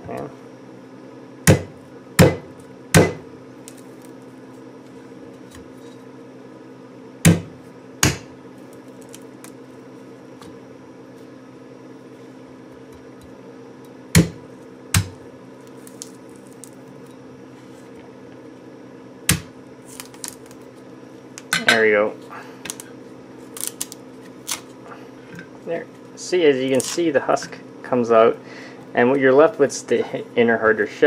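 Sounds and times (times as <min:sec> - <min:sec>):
knife chopping coconut husk: 0:01.5 - 0:03.9, 0:07.2 - 0:08.3, 0:14.1 - 0:16.8, 0:19.3 - 0:20.4.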